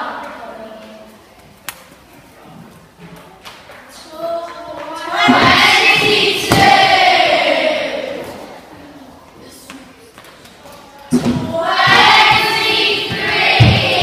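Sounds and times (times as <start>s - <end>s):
children shouting and cheering: 4.0s - 9.0s, 10.7s - 14.0s.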